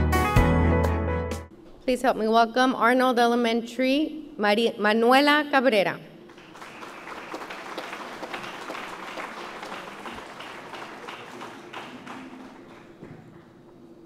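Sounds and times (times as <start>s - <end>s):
audience applauding: 6.3s - 13.8s.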